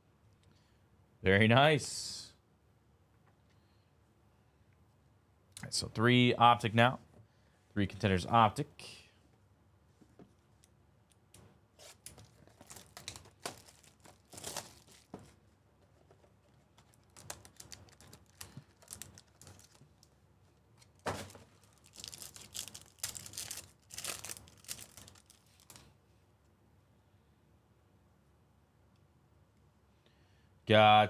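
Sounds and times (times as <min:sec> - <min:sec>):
foil pack tearing: 0:11.8 - 0:15.1, 0:17.0 - 0:19.8, 0:21.0 - 0:25.8.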